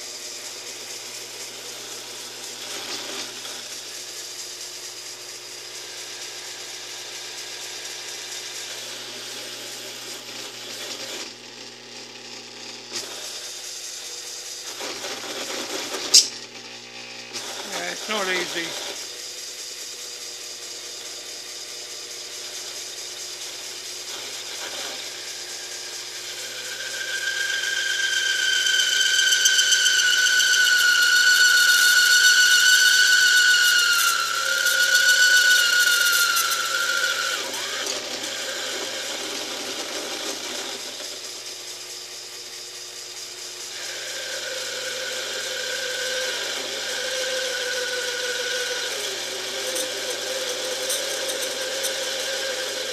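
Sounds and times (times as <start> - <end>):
lathe cutting steel squealing: 24.1 - 41.8, 42.6 - 52.9.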